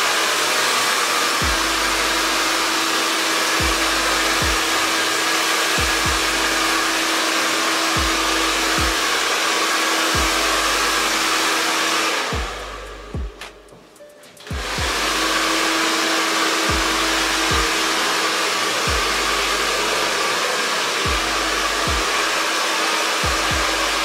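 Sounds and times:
hair dryer blowing: 0:00.0 - 0:24.0
deep bass music notes: 0:01.4 - 0:02.6, 0:03.6 - 0:04.9, 0:05.8 - 0:07.0, 0:08.0 - 0:09.1, 0:10.2 - 0:11.3, 0:12.3 - 0:15.6, 0:16.7 - 0:17.8, 0:18.9 - 0:20.0, 0:21.1 - 0:22.1, 0:23.2 - 0:24.0.

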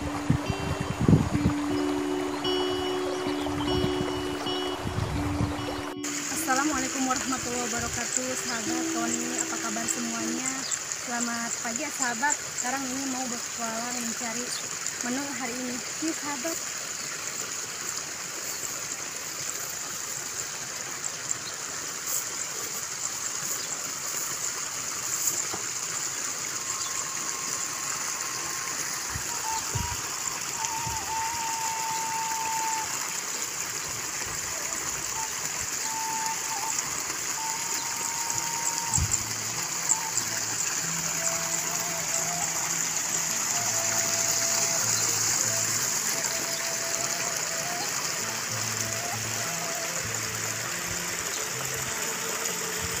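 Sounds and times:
low bass line: 0:00.0 - 0:10.0
music of long held notes: 0:00.0 - 0:12.2, 0:25.2 - 0:53.0
water trickling: 0:00.0 - 0:53.0.

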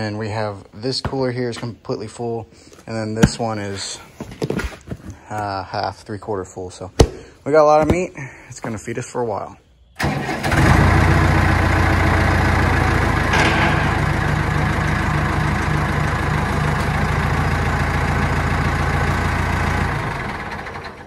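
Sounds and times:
tractor engine running: 0:10.0 - 0:21.0.

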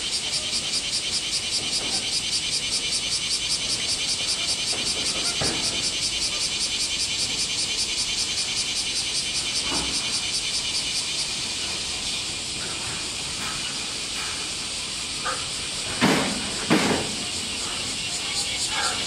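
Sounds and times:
insects shrilling: 0:00.0 - 0:19.0
outdoor hiss: 0:00.0 - 0:19.0.

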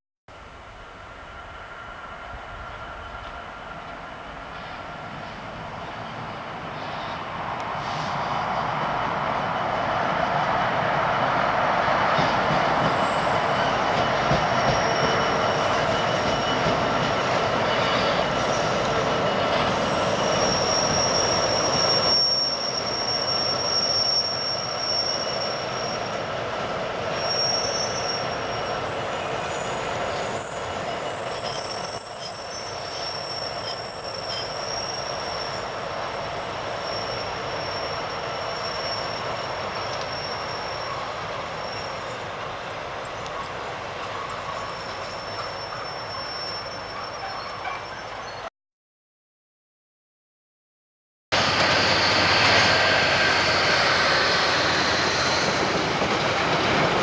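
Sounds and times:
train rolling rumble: 0:00.4 - 0:48.3, 0:51.4 - 0:57.0
high-pitched wheel squeal: 0:12.7 - 0:42.4, 0:43.4 - 0:48.5, 0:51.4 - 0:56.6.

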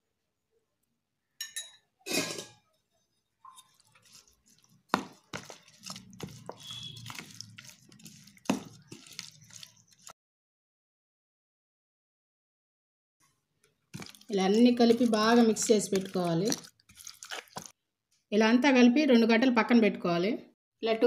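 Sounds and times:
wet squelching of stirred marinade: 0:03.4 - 0:10.1, 0:13.6 - 0:17.8.

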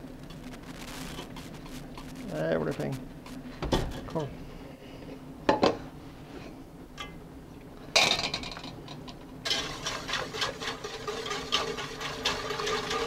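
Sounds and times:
whisk clicking against pot: 0:09.5 - 0:13.0.

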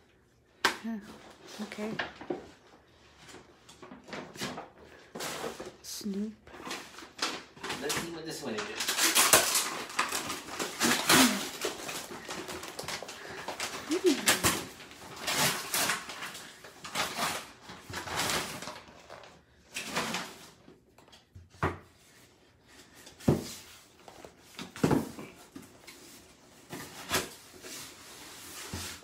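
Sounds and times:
plastic bag and bubble wrap crinkling: 0:01.1 - 0:20.8.

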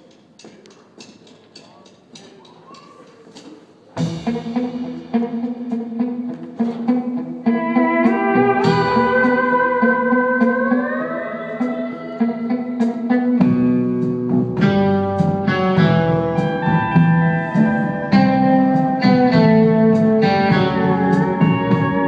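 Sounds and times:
light percussion ticks: 0:00.0 - 0:03.5
bass notes: 0:04.0 - 0:22.0
electric guitar: 0:04.0 - 0:22.0
pedal steel guitar chords: 0:04.0 - 0:22.0.

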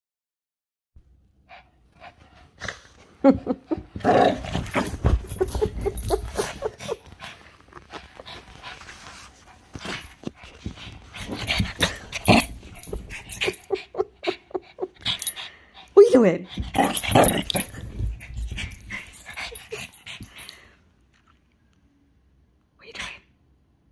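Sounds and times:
small dog yapping and grunting: 0:03.7 - 0:08.5, 0:11.1 - 0:15.2, 0:16.5 - 0:20.4.

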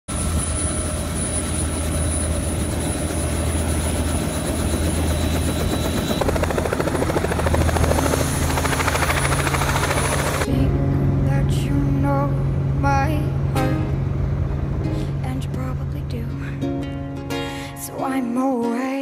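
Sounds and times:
helicopter engine and rotor hum: 0:00.1 - 0:11.2
helicopter blade chop: 0:01.0 - 0:10.5.

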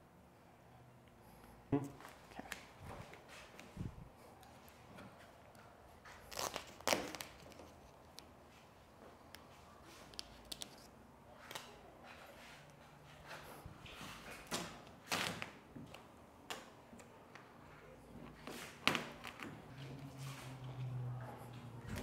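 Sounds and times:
vinyl film crinkling: 0:06.0 - 0:08.3.

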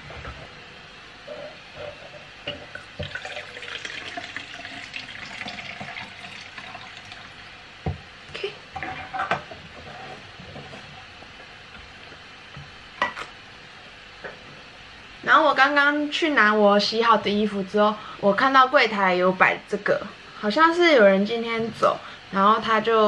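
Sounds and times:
water pouring into cup: 0:02.7 - 0:07.6.

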